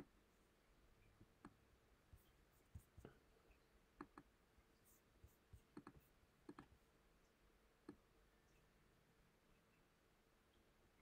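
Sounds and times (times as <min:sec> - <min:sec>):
computer mouse clicks: 0:04.0 - 0:04.3, 0:05.6 - 0:06.8.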